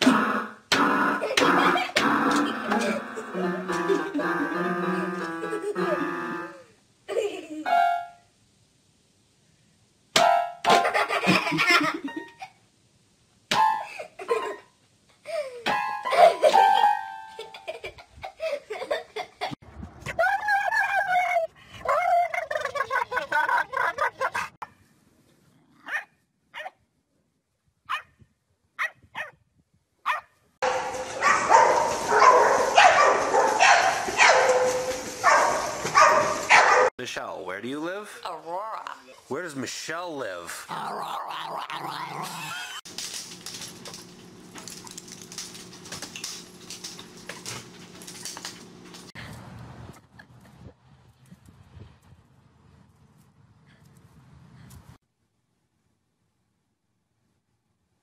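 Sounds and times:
dogs scrambling: 0:30.6 - 0:36.9, 0:42.4 - 0:49.2.

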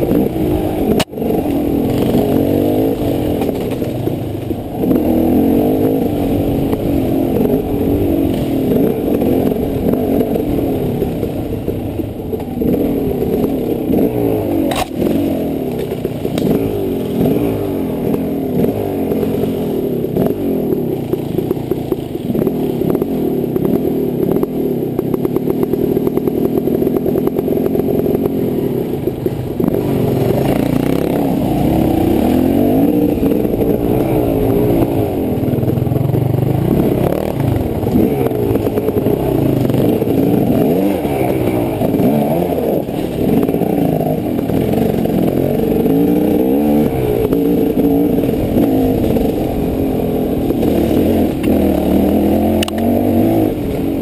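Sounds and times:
dirt bike engine revving: 0:00.0 - 0:54.0
bike clattering over rough ground: 0:00.9 - 0:04.6, 0:14.7 - 0:17.5.

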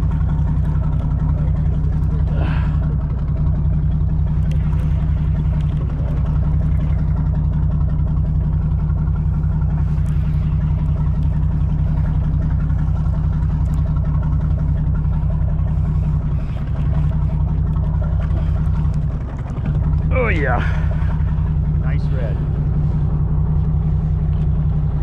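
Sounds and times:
boat engine droning: 0:00.0 - 0:25.0.

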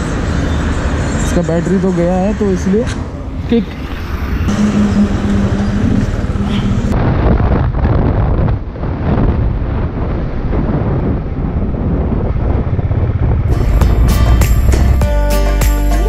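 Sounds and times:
wind buffeting microphone: 0:00.0 - 0:15.0
motorcycle engine running: 0:04.5 - 0:07.0, 0:12.1 - 0:15.8.

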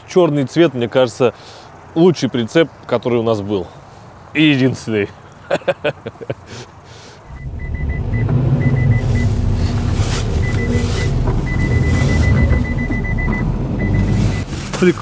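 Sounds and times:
car engine revving: 0:07.2 - 0:14.6
high electronic beep: 0:07.3 - 0:14.5
wheels churning in snow: 0:07.4 - 0:15.0.

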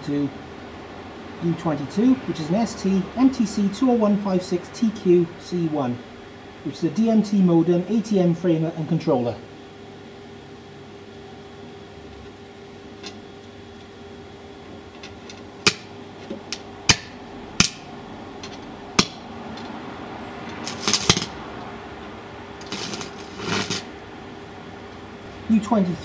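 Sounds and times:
steady low hum: 0:00.0 - 0:26.0
crackling welding arc: 0:14.9 - 0:19.7, 0:20.4 - 0:21.7, 0:22.6 - 0:24.0
electrode striking sharp cracks: 0:15.6 - 0:17.9, 0:19.0 - 0:19.3, 0:20.6 - 0:21.4, 0:22.6 - 0:23.9.

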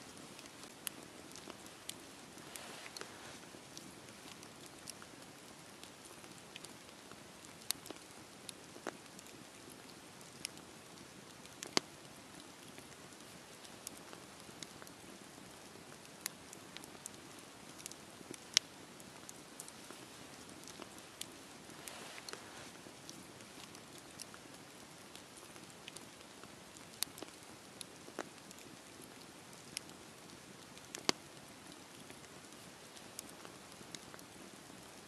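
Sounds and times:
campfire crackling and hissing: 0:00.0 - 0:35.0.

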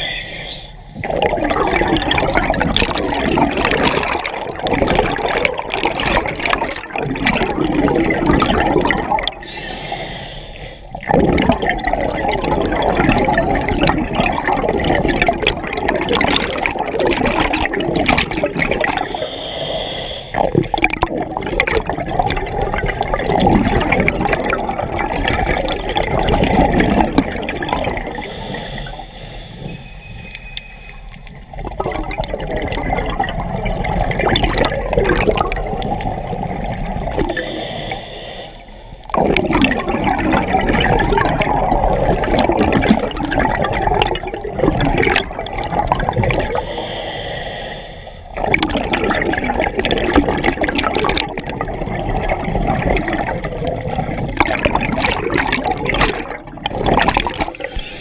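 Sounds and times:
regulator inhale hiss: 0:00.0 - 0:01.0, 0:09.4 - 0:11.0, 0:19.0 - 0:20.5, 0:28.1 - 0:31.4, 0:37.3 - 0:39.1, 0:46.5 - 0:48.4, 0:57.5 - 0:58.0
underwater bubbles gurgling: 0:00.0 - 0:58.0.

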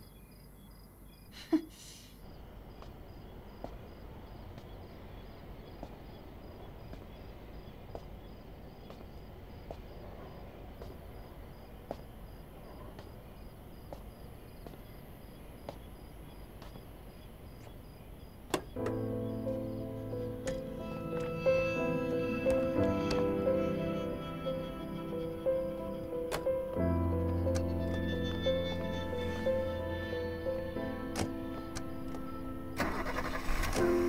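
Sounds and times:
crickets chirping: 0:00.0 - 0:34.0
footsteps on pavement: 0:02.6 - 0:21.4.

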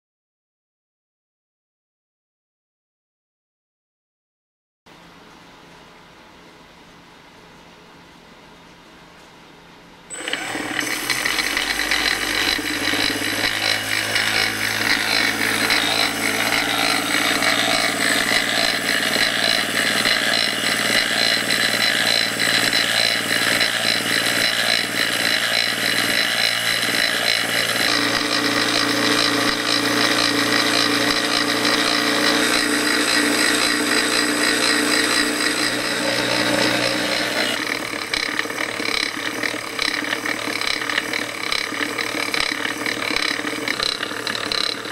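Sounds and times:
electric motor whining: 0:10.1 - 0:44.9
rough mechanical rattle: 0:10.1 - 0:44.9.

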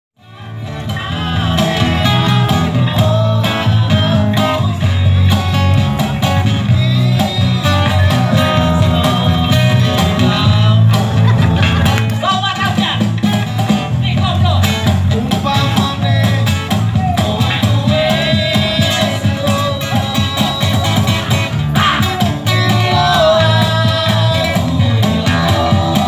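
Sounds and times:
man singing through speaker: 0:00.2 - 0:11.6, 0:14.1 - 0:26.0
strummed acoustic guitars: 0:00.2 - 0:26.0
cajon beat: 0:00.6 - 0:26.0.

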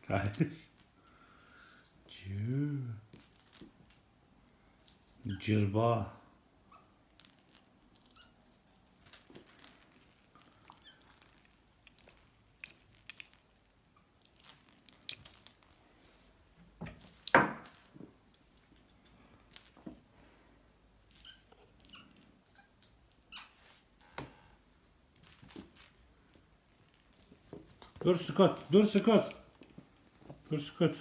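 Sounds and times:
toy ball bell jingling: 0:09.0 - 0:15.8, 0:25.2 - 0:29.7.

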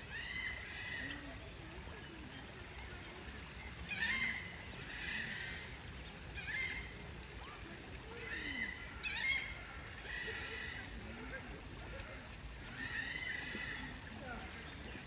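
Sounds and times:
low outdoor background: 0:00.0 - 0:15.0.

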